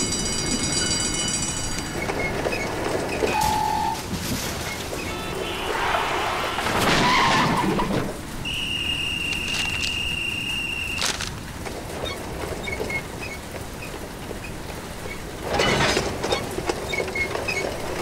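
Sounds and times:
steady rain: 0:00.0 - 0:18.0
high steady squeal: 0:08.4 - 0:11.1.

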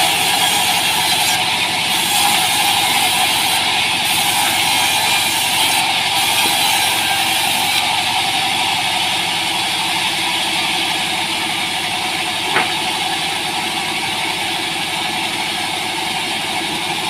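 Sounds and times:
band saw ripping wood: 0:00.0 - 0:07.8.

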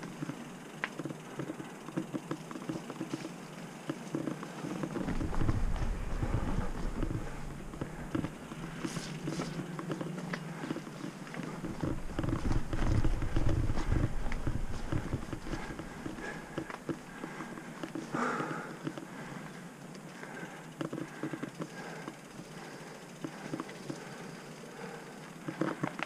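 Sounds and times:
bike rattling with small clicks: 0:00.0 - 0:26.0
bike tyres on dirt: 0:00.0 - 0:26.0
low rumble: 0:05.0 - 0:09.6, 0:11.5 - 0:17.4.

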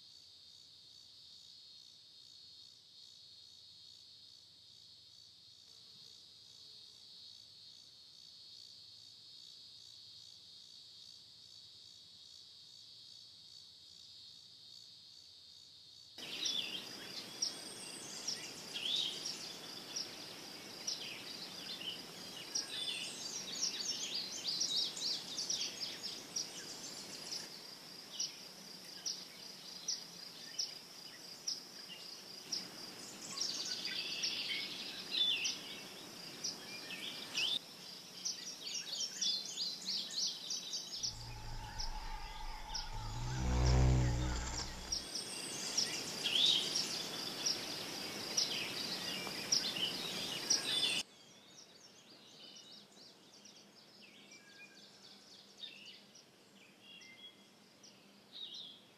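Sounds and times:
insect hum: 0:00.0 - 0:51.0
night insects trilling: 0:40.6 - 0:50.7.

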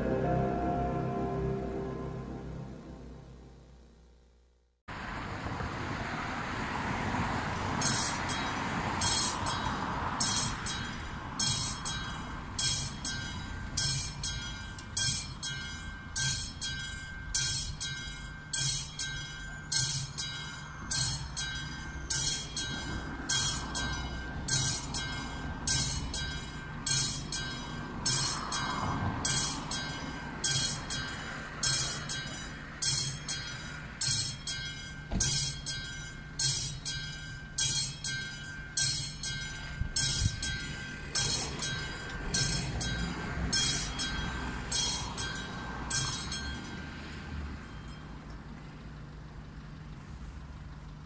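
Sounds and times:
level crossing bell ringing: 0:00.0 - 0:03.0, 0:07.8 - 0:48.2
low rumble: 0:00.0 - 0:04.8.

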